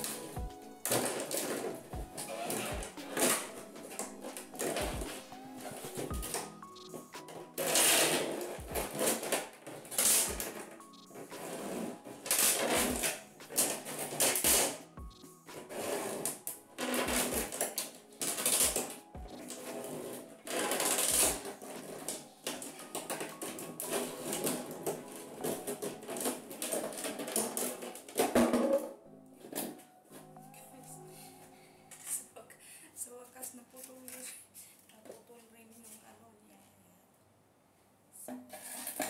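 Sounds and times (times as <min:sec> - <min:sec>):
plastic cracking and crunching: 0:00.0 - 0:04.8, 0:07.6 - 0:10.8, 0:12.2 - 0:14.8, 0:16.2 - 0:29.8
background music: 0:00.0 - 0:33.7.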